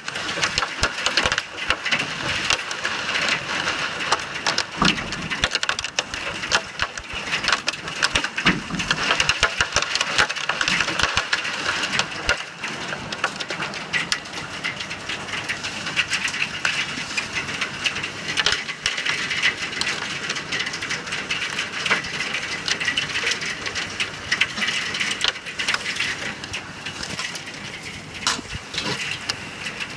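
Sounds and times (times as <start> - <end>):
hailstones pelting down: 0.0 - 29.9
heavy rain hiss: 21.1 - 29.9.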